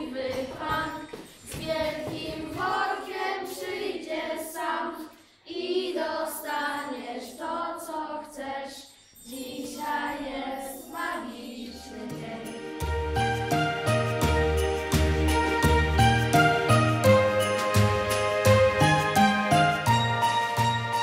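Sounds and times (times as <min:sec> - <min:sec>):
children singing unaccompanied: 0:00.0 - 0:12.8
music track with a beat: 0:12.8 - 0:21.0.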